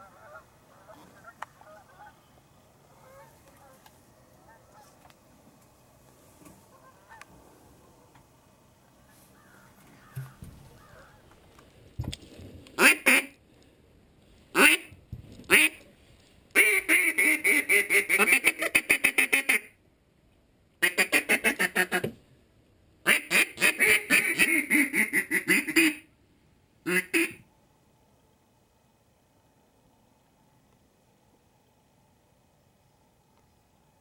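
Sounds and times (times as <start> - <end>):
duck call quacking: 12.8 - 13.4, 14.6 - 14.9, 15.5 - 15.8, 16.6 - 19.7, 20.8 - 22.1, 23.1 - 26.1, 26.9 - 27.4.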